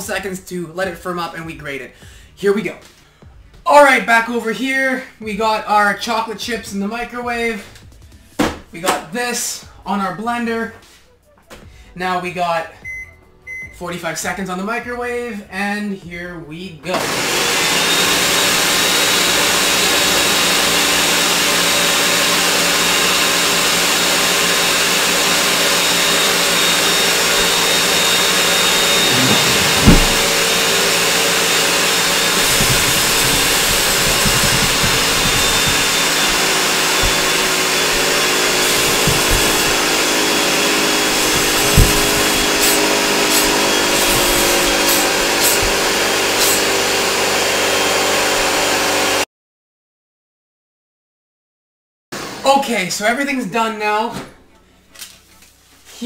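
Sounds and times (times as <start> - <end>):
blender whirring: 17.0 - 49.2
sharp low thump: 28.9 - 30.6.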